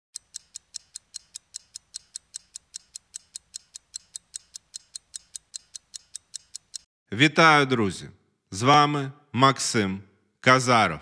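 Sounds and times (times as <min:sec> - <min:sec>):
fast clock-like ticking: 0:00.2 - 0:06.9.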